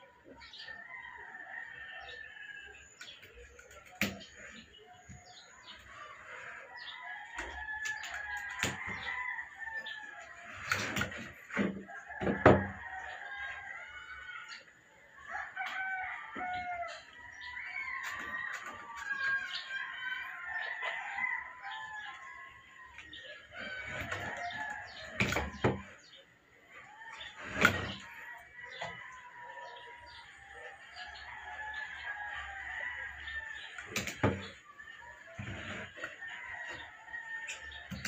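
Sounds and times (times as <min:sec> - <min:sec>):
rooster crowing: 0:12.0 - 0:26.0, 0:26.8 - 0:38.0.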